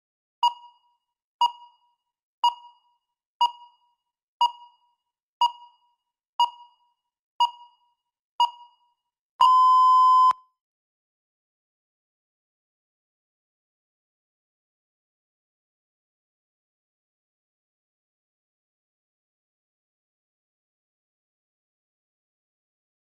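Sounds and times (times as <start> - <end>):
short timer beeps: 0.4 - 0.8, 1.4 - 3.8, 6.4 - 6.8, 9.4 - 10.4
long timer beep: 9.4 - 10.4.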